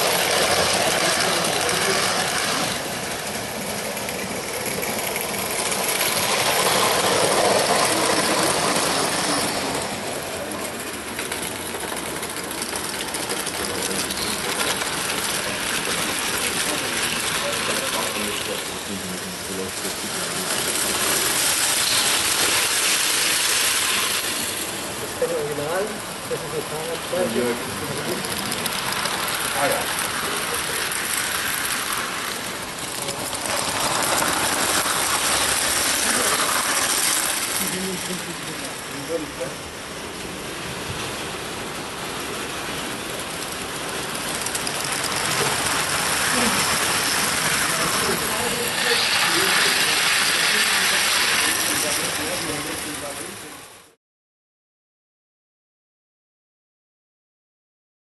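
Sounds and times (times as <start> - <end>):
toy train rattling on track: 0.0 - 53.8
steam hiss: 13.1 - 25.8, 28.9 - 53.4.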